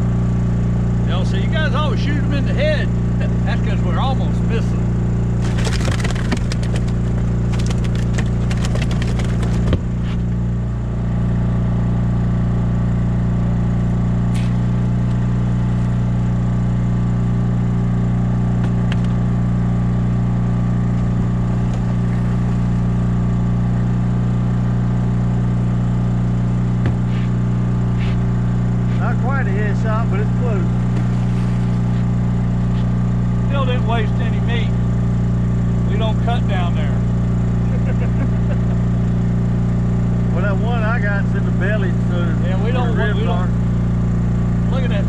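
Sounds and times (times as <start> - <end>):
generator running: 0.0 - 45.0
gear clicking and rattling: 5.3 - 10.4.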